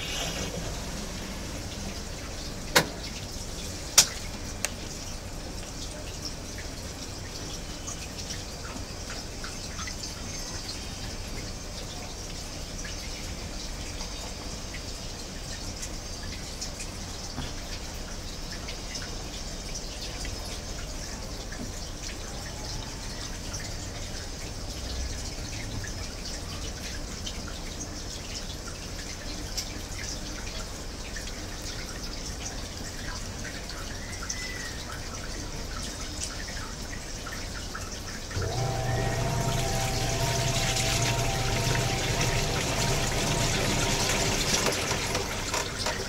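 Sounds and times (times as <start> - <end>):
water dripping and trickling: 0.0 - 46.0
water swirling in tub: 36.9 - 46.0
washing machine motor hum: 38.1 - 46.0.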